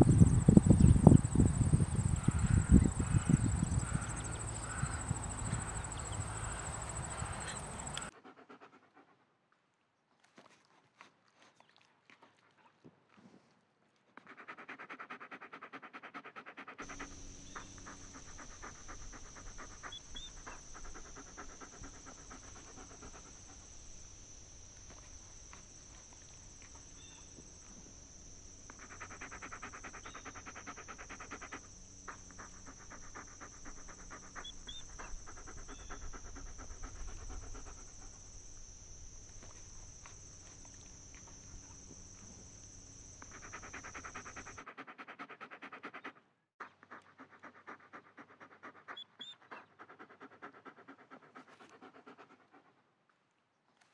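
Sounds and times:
small dog panting: 0:00.0 - 0:09.2, 0:14.2 - 0:23.8, 0:28.7 - 0:38.3, 0:43.2 - 0:52.8.

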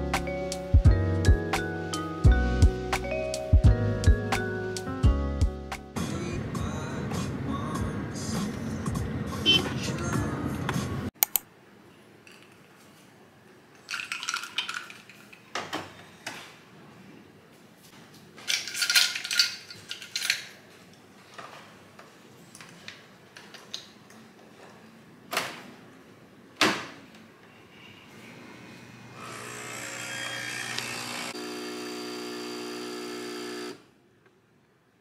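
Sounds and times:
kitchen appliance motor running: 0:29.1 - 0:33.8.

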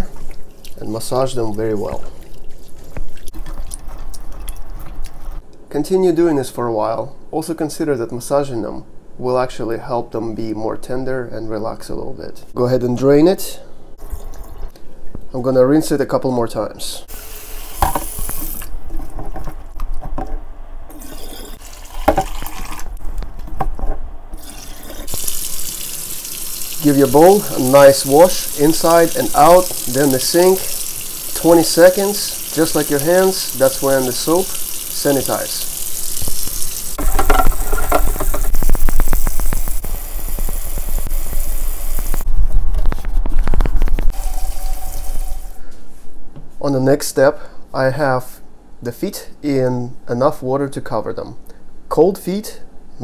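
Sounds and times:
water pouring off: 0:24.4 - 0:42.2.

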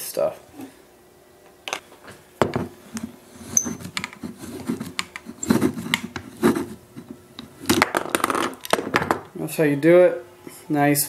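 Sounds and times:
pipe cutter scraping plastic: 0:02.9 - 0:07.8.

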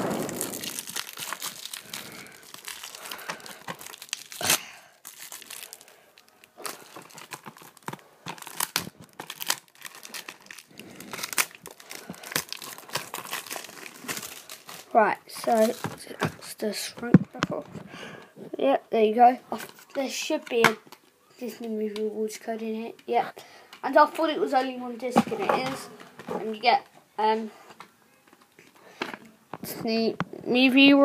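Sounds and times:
plastic shrink wrap crinkling: 0:00.0 - 0:16.6.

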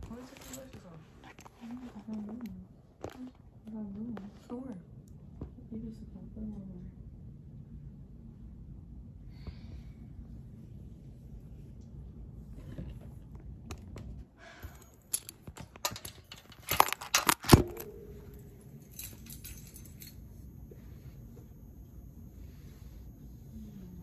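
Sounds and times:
phone handling noise: 0:15.5 - 0:18.5.

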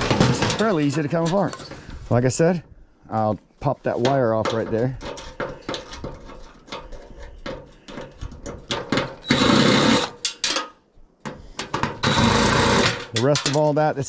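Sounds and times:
drill motor whirring: 0:09.2 - 0:10.1, 0:12.0 - 0:13.0
drill clicking: 0:09.2 - 0:10.2, 0:12.0 - 0:13.1.

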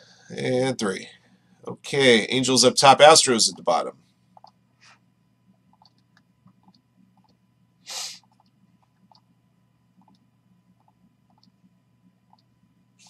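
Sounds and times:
low steady hum: 0:00.0 - 0:13.0
mouse and keyboard clicks: 0:04.4 - 0:04.6.

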